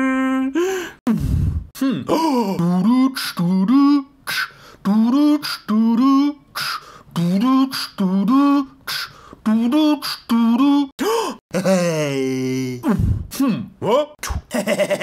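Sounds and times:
man beatboxing: 1.1s - 10.9s, 14.2s - 14.5s.

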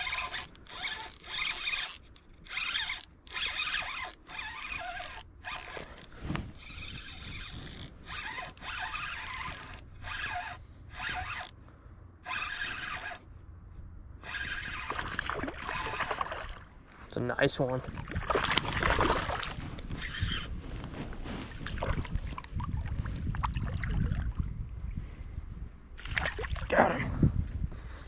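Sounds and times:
fishing reel whirring and clicking: 0.0s - 11.6s, 12.2s - 13.3s, 14.2s - 16.4s, 18.2s - 20.5s.

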